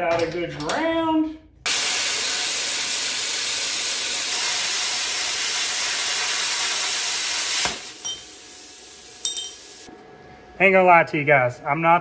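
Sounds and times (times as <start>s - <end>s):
plasma cutter hissing: 1.7s - 9.9s
light metallic clink: 9.2s - 9.6s.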